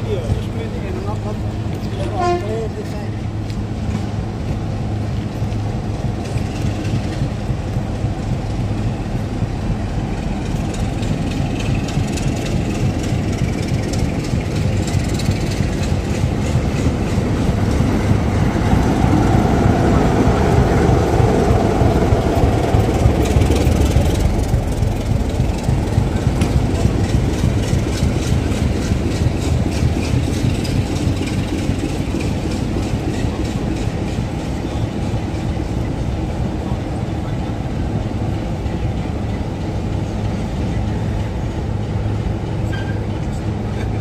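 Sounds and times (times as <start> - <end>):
diesel locomotive engine running: 0.0 - 44.0.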